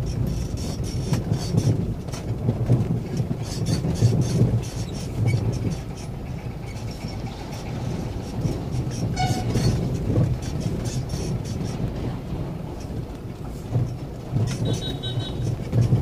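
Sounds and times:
vehicle engine and road rumble: 0.0s - 16.0s
short horn beep: 14.6s - 15.4s.

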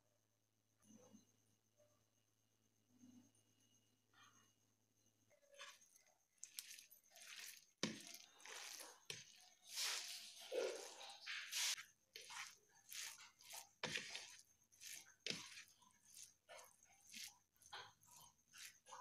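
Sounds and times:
fingers squishing oily rice: 5.6s - 19.0s.

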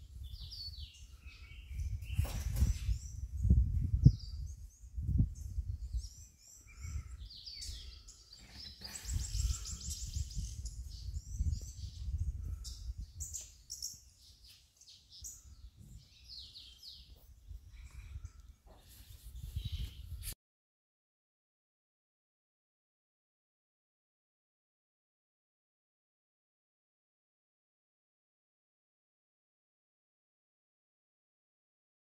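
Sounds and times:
low rumbling in gusts: 0.0s - 6.2s, 9.0s - 13.2s
wild birds chirping: 0.0s - 20.1s.

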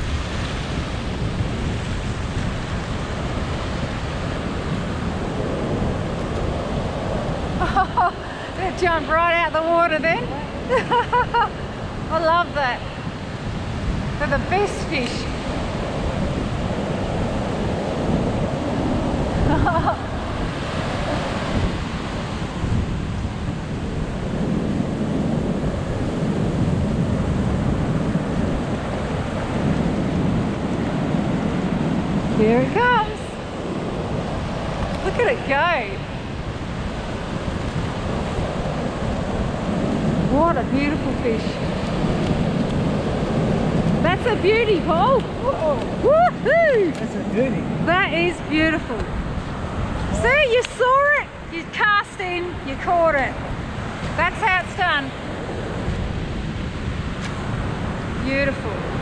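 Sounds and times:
ocean surf breaking: 0.0s - 59.0s
wind noise on microphone: 0.0s - 59.0s.

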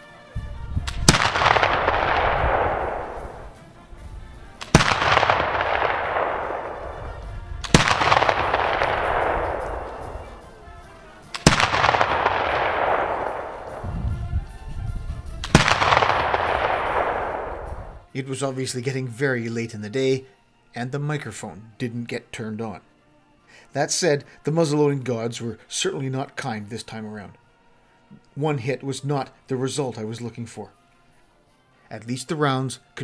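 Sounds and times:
rifle shots with rolling echo: 0.9s - 14.2s, 15.3s - 18.1s.

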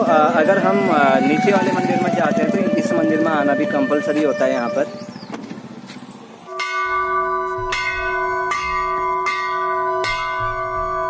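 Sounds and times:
large temple bell ringing: 6.5s - 11.0s.

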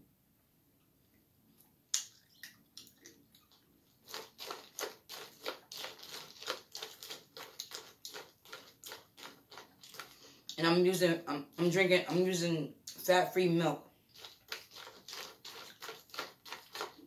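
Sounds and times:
chewing crunchy cereal: 2.2s - 10.6s, 14.1s - 17.0s.

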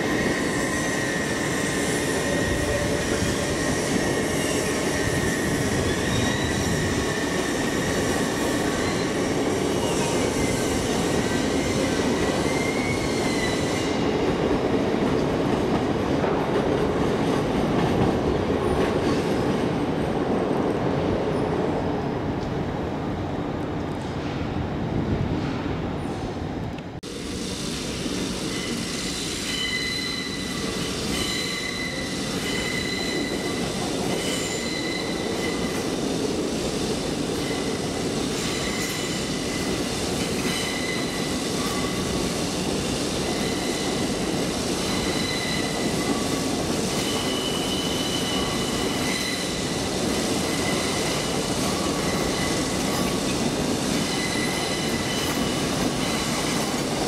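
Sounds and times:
train wheels rumbling on rails: 0.0s - 57.0s
high-pitched wheel squeals: 29.5s - 33.6s, 34.3s - 35.7s.

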